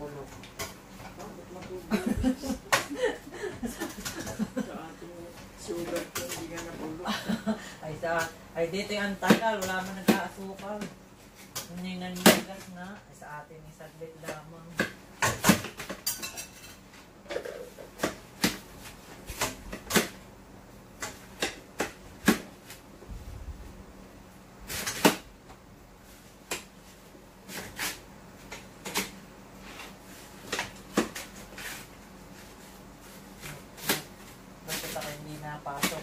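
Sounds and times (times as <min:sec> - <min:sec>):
faint steady hum: 0:00.0 - 0:36.0
kitchen utensils and dishes clinking: 0:15.2 - 0:17.8.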